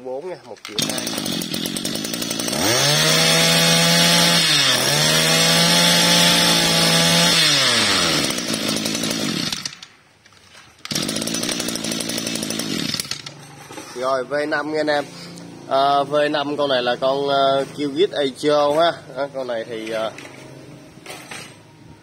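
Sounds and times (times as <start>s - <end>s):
brush cutter engine revving: 0.6s - 9.8s, 10.8s - 13.4s.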